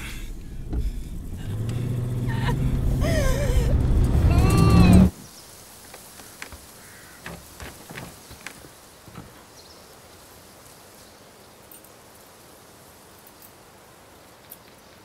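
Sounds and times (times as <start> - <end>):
faint outdoor ambience: 0.0 - 15.0
door handle clicks and knocks: 7.2 - 9.3.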